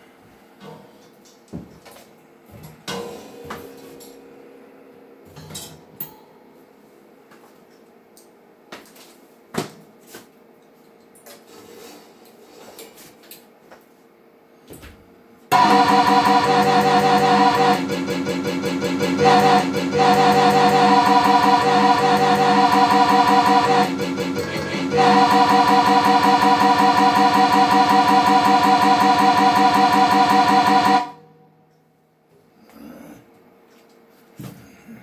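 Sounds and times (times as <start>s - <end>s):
drum hardware clanking: 15.5s - 28.6s
loud gospel music: 15.6s - 28.4s.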